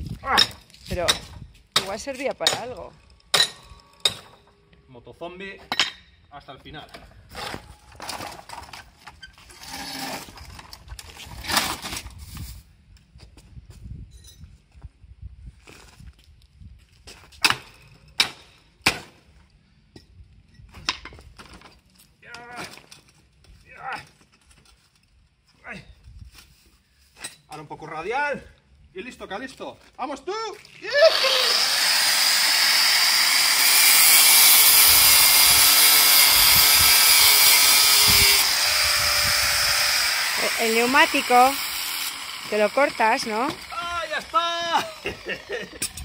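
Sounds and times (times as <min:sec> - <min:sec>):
axe striking metal: 0:00.3 - 0:04.4, 0:17.4 - 0:19.2
angle grinder cutting metal: 0:30.9 - 0:46.0.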